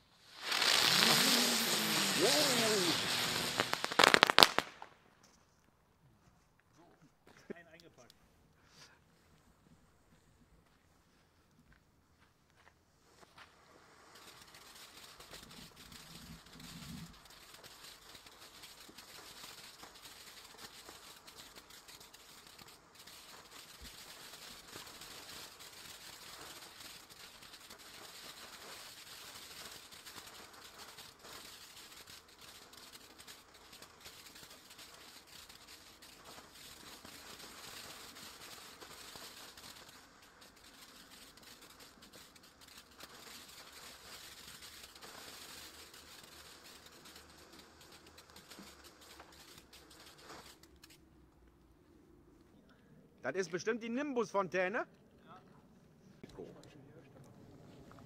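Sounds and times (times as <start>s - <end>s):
firework fountain hissing and crackling: 0.0s - 5.2s, 12.1s - 58.0s.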